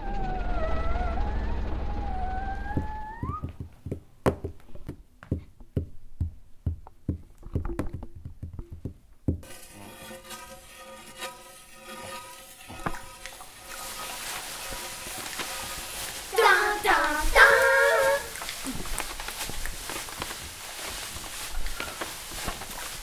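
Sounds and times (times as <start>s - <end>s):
sharp knocks: 2.6s - 9.5s
hiss with held tones: 13.3s - 23.0s.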